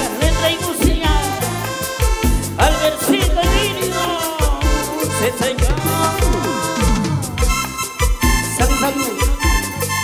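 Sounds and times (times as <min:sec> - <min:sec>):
live band music: 0:00.0 - 0:10.0.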